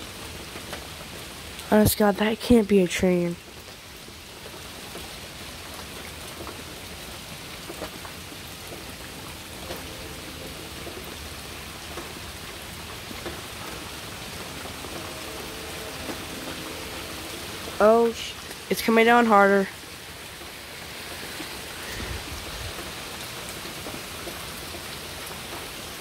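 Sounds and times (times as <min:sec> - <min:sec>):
steady rain falling: 0:00.0 - 0:26.0
faint distant horn: 0:08.9 - 0:12.2, 0:13.4 - 0:18.7.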